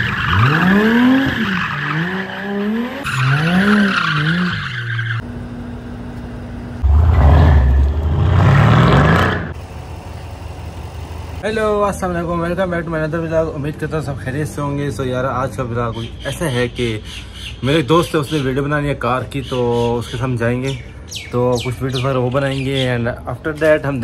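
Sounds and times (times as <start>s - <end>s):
sports car engines revving: 0.0s - 11.4s
deep engine revving: 6.8s - 9.6s.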